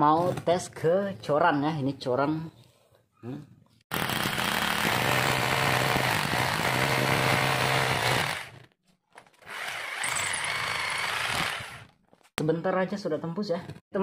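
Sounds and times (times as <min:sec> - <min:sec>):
rotary hammer drilling concrete: 0:03.9 - 0:08.7, 0:09.4 - 0:12.0.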